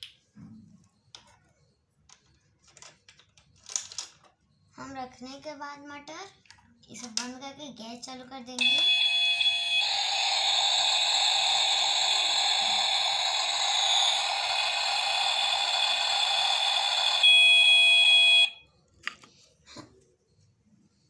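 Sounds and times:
steady beep tone: 8.6s - 18.6s
toy stove hissing with electronic tones: 8.6s - 18.6s.

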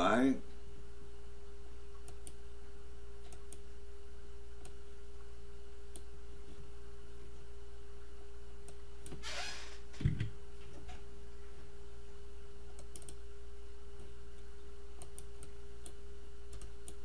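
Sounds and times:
steady hum: 0.0s - 17.0s
computer mouse clicks: 2.0s - 2.4s, 3.2s - 3.7s, 12.7s - 13.2s, 15.0s - 17.0s.

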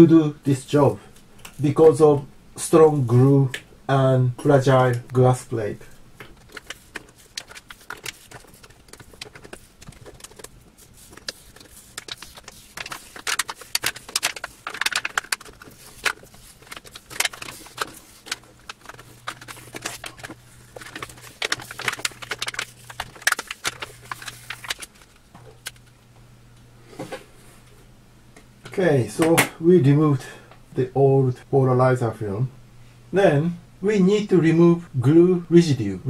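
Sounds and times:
film peeling with crackling: 6.2s - 26.0s.

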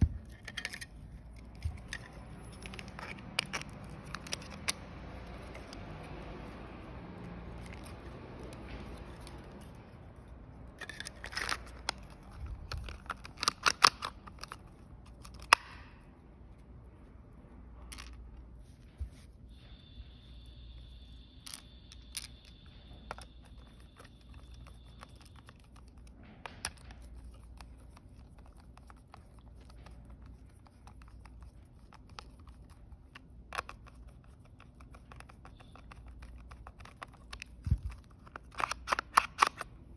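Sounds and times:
faint high whine: 17.7s - 26.4s.

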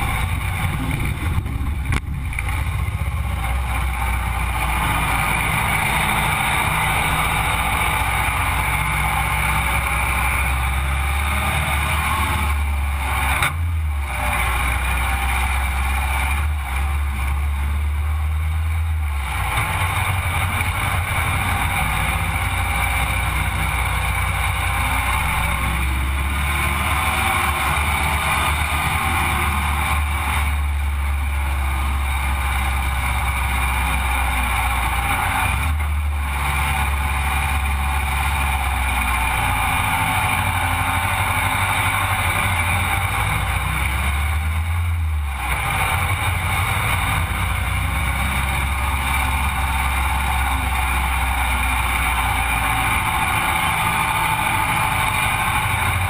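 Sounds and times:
wind noise: 0.0s - 3.3s
road noise: 0.0s - 56.0s
vehicle engine running: 0.0s - 56.0s.

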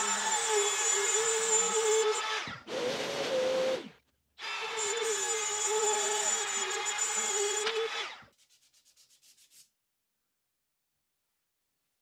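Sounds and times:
router whining: 0.0s - 8.2s.

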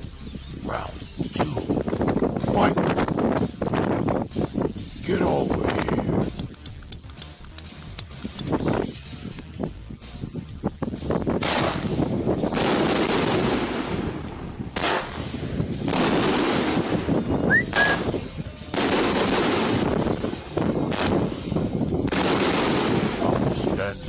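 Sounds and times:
firework salute bangs with echo: 18.7s - 20.2s, 20.9s - 23.6s.

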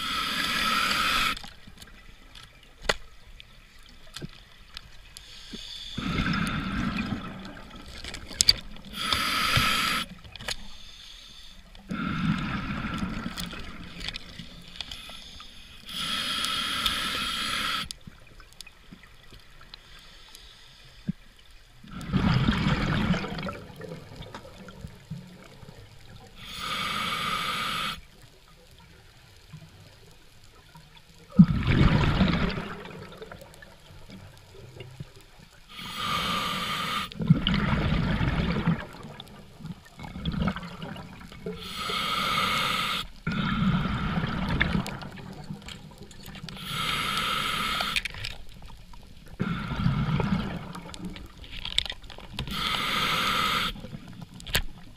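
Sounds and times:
diver breathing through regulator: 0.0s - 1.5s, 8.9s - 13.8s, 14.8s - 17.9s, 26.4s - 28.1s, 35.7s - 37.2s, 41.5s - 44.9s, 46.6s - 48.2s, 49.4s - 51.0s, 52.4s - 53.9s
bubbling exhaled air: 6.0s - 7.9s, 11.9s - 14.0s, 21.9s - 25.0s, 31.3s - 33.7s, 35.8s - 39.3s, 40.0s - 45.7s, 49.4s - 51.4s.

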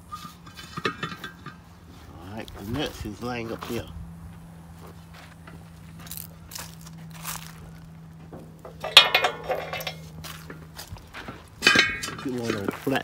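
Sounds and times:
steel nuts clinking: 0.1s - 1.6s, 8.6s - 10.2s, 11.6s - 13.0s
sharp ringing metallic clank: 8.6s - 10.2s, 11.6s - 12.6s.

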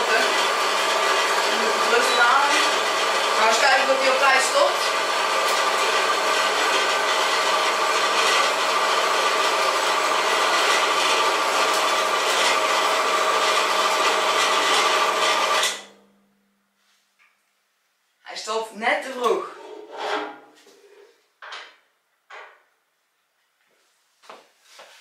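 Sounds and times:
band saw motor hum: 0.0s - 16.0s
saw blade rasping through metal: 19.6s - 20.6s.

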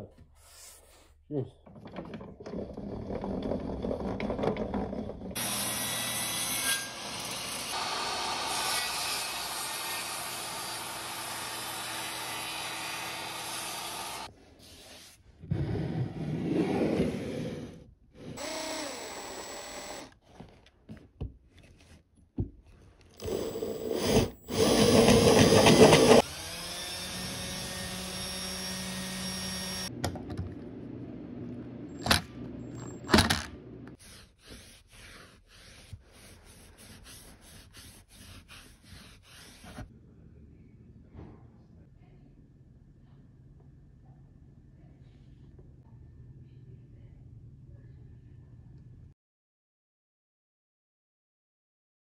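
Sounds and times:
cordless drill running: 18.4s - 20.2s, 23.2s - 29.9s.

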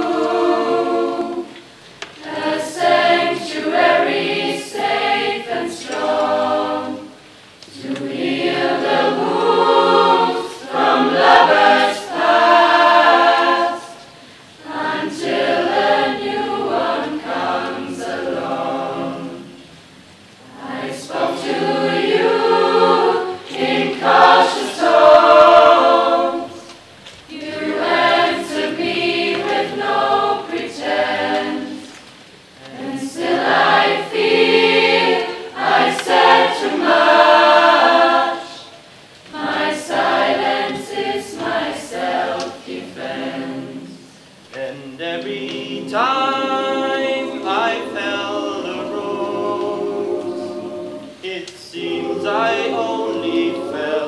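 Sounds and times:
children's choir singing unaccompanied: 0.0s - 54.0s.

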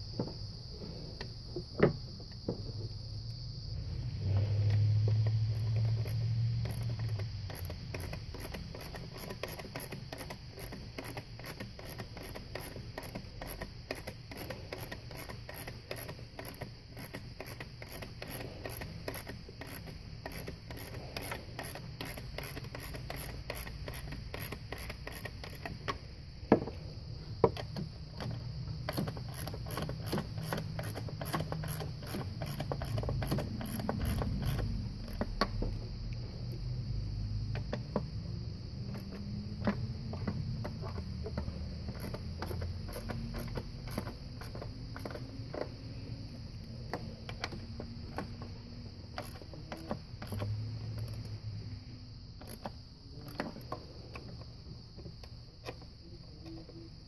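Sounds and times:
sharp metallic clicks: 4.4s - 26.1s, 27.4s - 36.6s, 38.8s - 51.5s, 52.3s - 54.4s
hand ratchet clicking: 4.6s - 26.0s, 27.5s - 35.7s, 38.8s - 45.8s, 46.5s - 48.5s, 49.1s - 51.4s, 52.4s - 54.2s.

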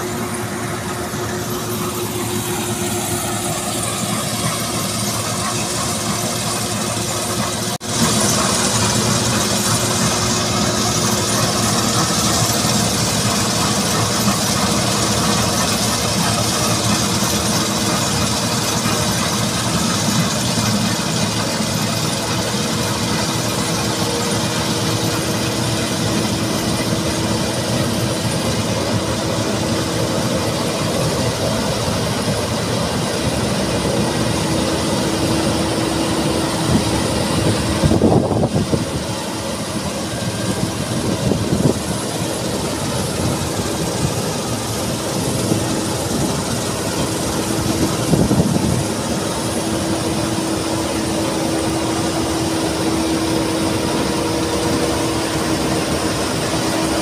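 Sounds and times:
combine harvester engine drone: 0.0s - 57.0s.

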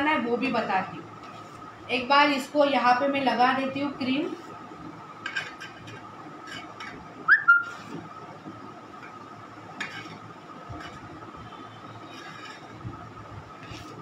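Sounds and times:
short rising whistle: 7.3s - 7.7s
palette knife scraping cream: 11.9s - 12.8s, 13.6s - 14.0s.

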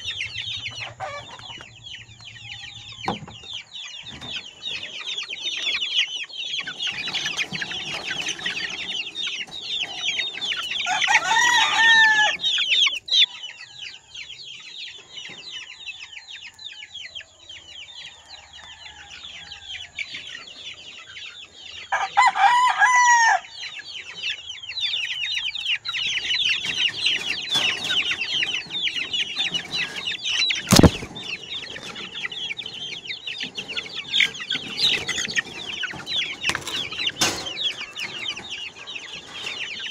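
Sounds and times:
chicks peeping: 0.0s - 39.9s
rooster crowing: 10.7s - 12.6s, 18.0s - 20.0s, 21.9s - 23.6s.

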